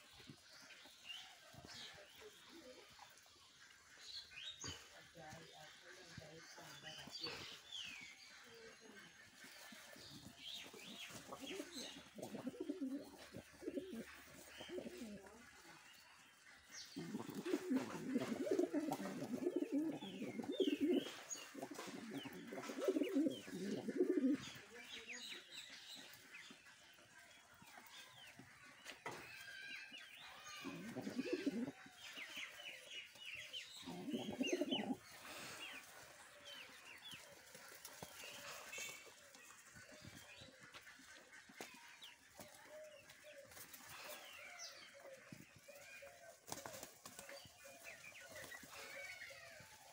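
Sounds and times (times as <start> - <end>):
pigeons cooing: 9.9 - 15.5, 16.3 - 24.7, 29.9 - 41.8.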